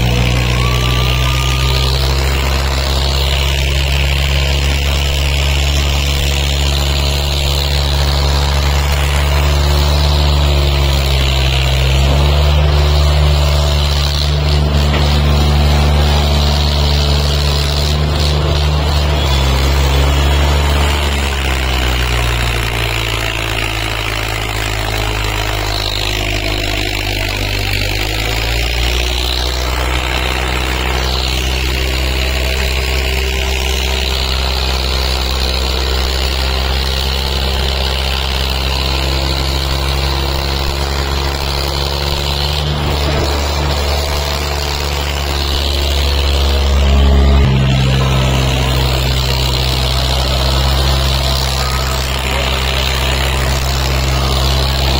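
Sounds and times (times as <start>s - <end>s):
tractor diesel engines under load: 0.0s - 54.9s.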